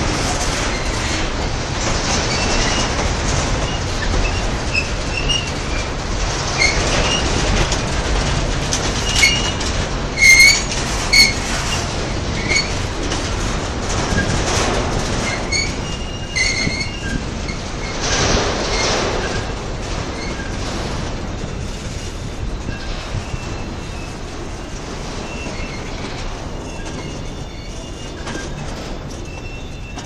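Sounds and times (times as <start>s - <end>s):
freight cars rolling on rails: 0.0s - 30.0s
high wheel squeals: 10.2s - 12.8s, 15.2s - 18.0s, 25.2s - 30.0s.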